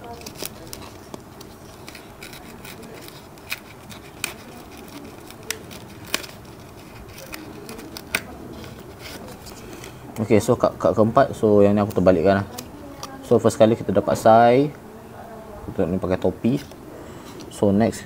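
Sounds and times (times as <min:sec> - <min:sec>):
card pack wrapper rustling: 0:00.0 - 0:10.0.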